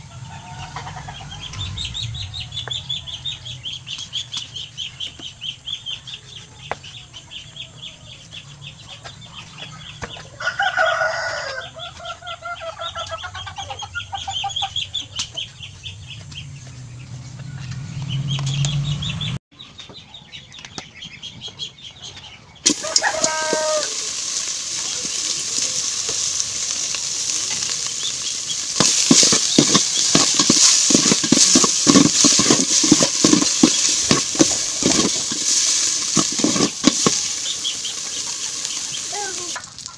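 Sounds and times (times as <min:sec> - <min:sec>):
chickens clucking: 0:00.0 - 0:39.9
meat sizzling in a pot: 0:22.6 - 0:39.9
ladle stirring and scraping: 0:24.4 - 0:39.0.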